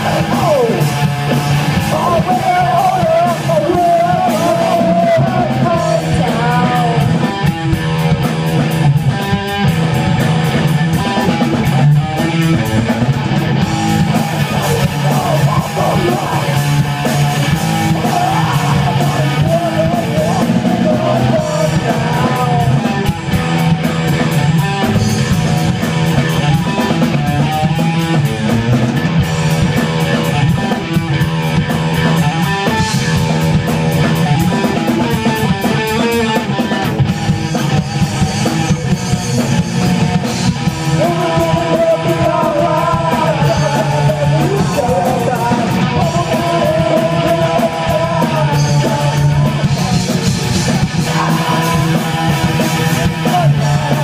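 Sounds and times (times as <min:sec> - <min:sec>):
drum kit: 0:00.0 - 0:54.0
electric guitar: 0:00.0 - 0:54.0.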